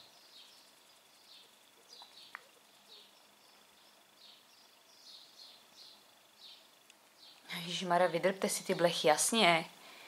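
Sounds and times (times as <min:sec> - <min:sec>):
faint high chirps: 0:00.0 - 0:07.7
small click: 0:02.0 - 0:02.5.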